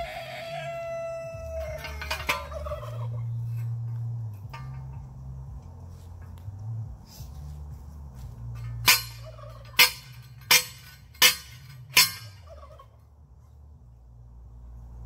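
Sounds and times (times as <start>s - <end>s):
metal post struck with clangs: 1.4s - 5.3s, 8.4s - 12.6s.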